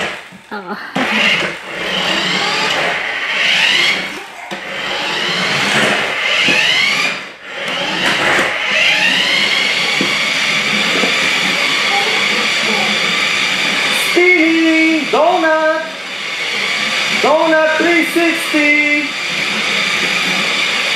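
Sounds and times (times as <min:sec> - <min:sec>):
toy car electric motor whining: 0:00.0 - 0:20.9.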